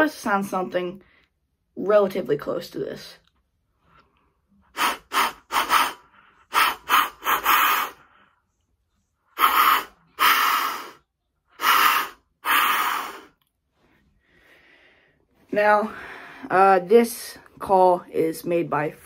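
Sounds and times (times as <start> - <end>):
deer call hissing puffs: 4.7 - 8.1, 9.4 - 11.0, 11.6 - 13.3.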